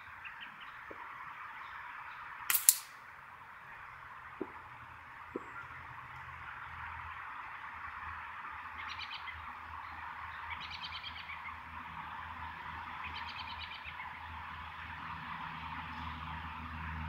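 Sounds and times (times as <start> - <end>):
steady hiss: 1.0 - 5.2.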